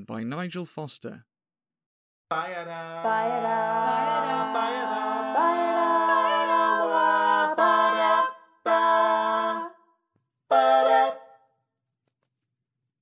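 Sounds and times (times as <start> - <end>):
vocal group singing chords: 2.3 - 9.9, 10.5 - 11.4.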